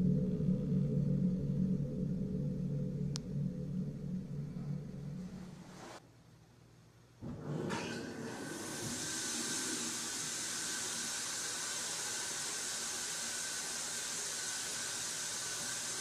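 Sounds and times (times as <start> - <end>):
steady hiss: 2.1 - 6.0, 7.4 - 16.0.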